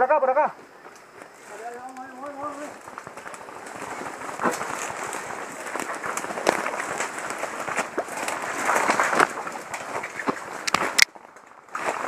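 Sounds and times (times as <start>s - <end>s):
crackling rustle through brush: 0.0s - 12.0s.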